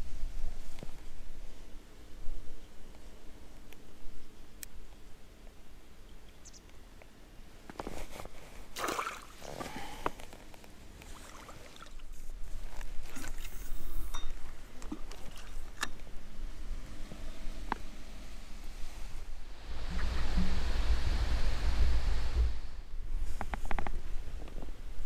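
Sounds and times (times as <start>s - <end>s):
low rumble and hiss: 0.0s - 25.0s
water splashing and sloshing: 8.6s - 10.4s, 11.0s - 16.0s.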